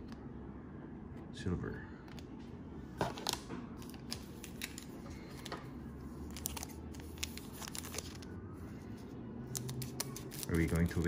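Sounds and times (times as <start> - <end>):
plastic wrapping crinkling: 6.2 - 8.3, 9.5 - 11.0.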